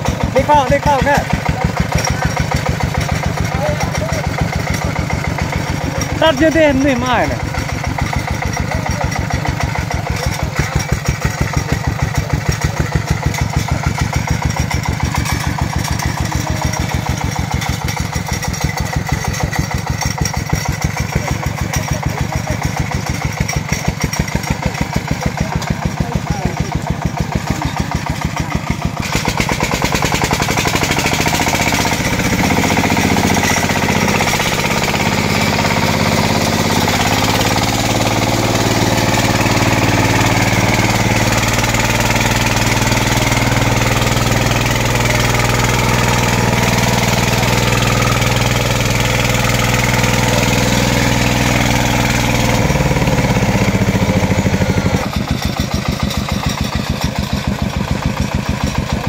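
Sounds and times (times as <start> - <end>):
diesel tractor engine: 0.0 - 59.0.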